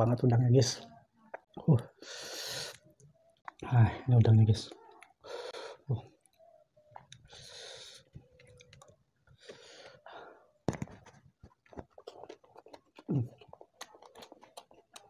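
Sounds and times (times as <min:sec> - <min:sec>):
chewing with wet mouth smacks: 0:11.4 - 0:15.0.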